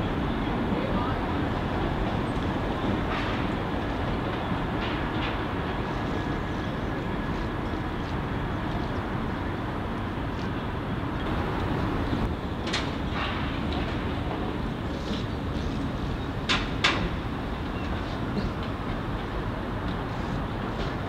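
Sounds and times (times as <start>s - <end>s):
diesel train low rumble: 0.0s - 21.0s.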